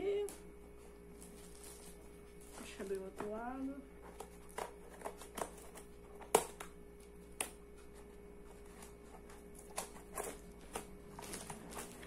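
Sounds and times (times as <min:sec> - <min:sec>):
scissors snipping packaging: 0:04.0 - 0:08.0, 0:08.6 - 0:12.0.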